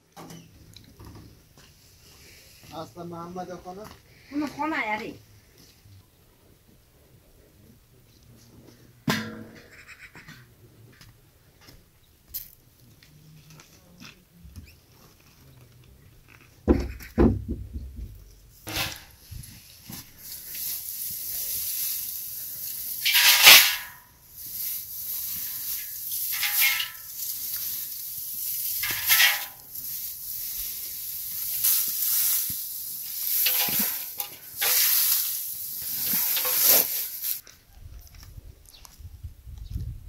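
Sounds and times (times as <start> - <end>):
hay rustling into metal basin: 18.5 - 37.4.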